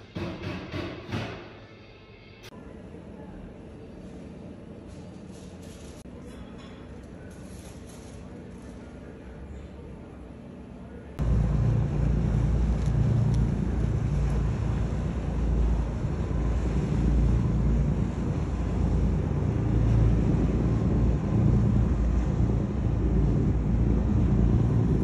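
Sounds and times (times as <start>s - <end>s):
boat engine rumble: 2.6s - 25.0s
wind buffeting microphone: 11.2s - 25.0s.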